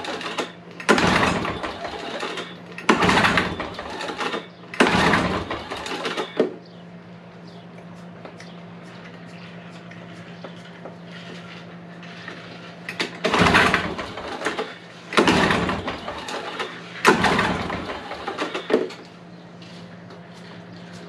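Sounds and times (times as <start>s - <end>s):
mower engine pull-start cranking: 0.0s - 6.5s, 12.1s - 19.0s.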